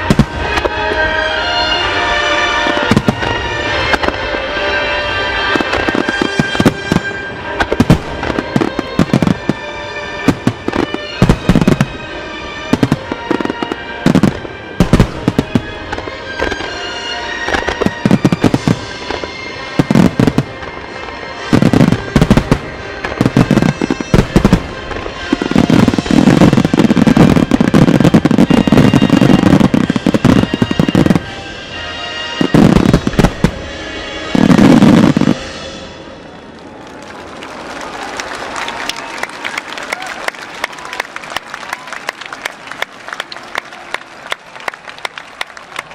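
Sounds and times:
fireworks barrage booms: 0.0 - 36.1
fireworks bursting and crackling: 0.0 - 45.9
music playing: 0.0 - 45.9.

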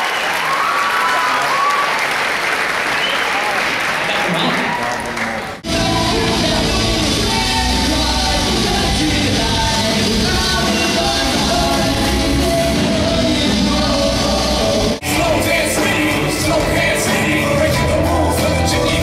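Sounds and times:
lead vocal singing: 5.6 - 19.0
live rock band playing: 5.6 - 19.0.

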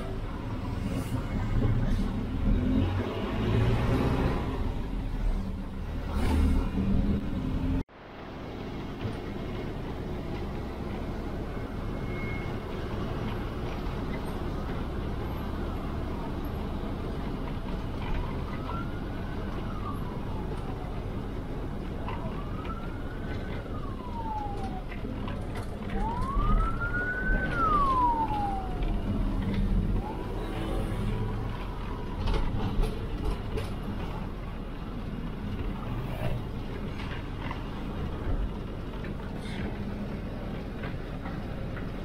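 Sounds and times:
bus engine and road noise: 0.0 - 42.0
siren wailing: 18.2 - 21.0, 22.0 - 32.5.

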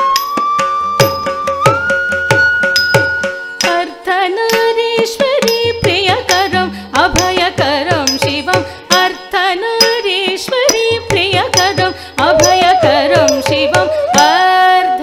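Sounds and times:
ornamented melody with sliding notes: 0.0 - 4.0
sharp percussion strokes: 0.0 - 14.4.

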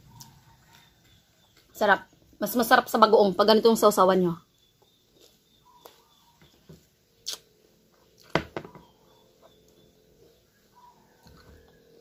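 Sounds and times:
chewing crisp mango: 0.0 - 1.7, 4.7 - 6.4, 7.1 - 8.3, 10.8 - 12.0
mouth clicks: 7.2 - 7.5.

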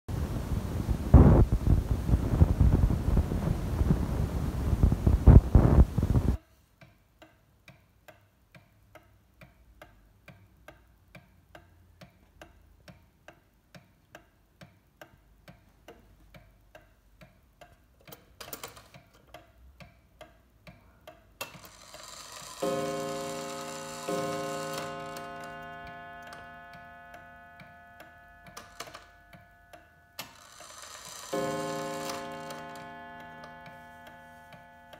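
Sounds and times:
loud rushing microphone noise: 0.1 - 6.4
clock ticking: 6.8 - 34.9
clock hand scraping: 21.6 - 26.6, 30.3 - 34.9.

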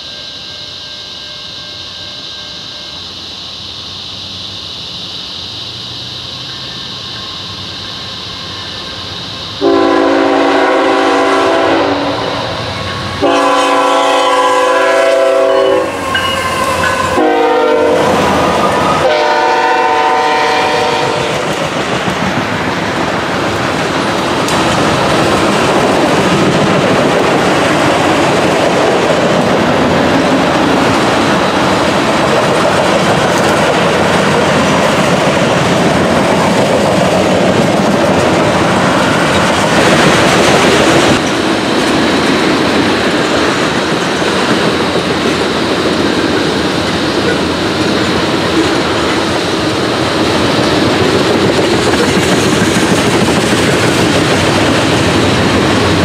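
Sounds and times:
locomotive air horn blasts: 9.6 - 21.6
train wheels clacking over rail joints: 20.4 - 56.0.

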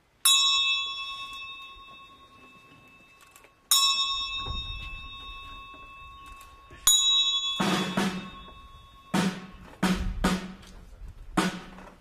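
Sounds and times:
small high-pitched bell ringing: 0.2 - 9.2.

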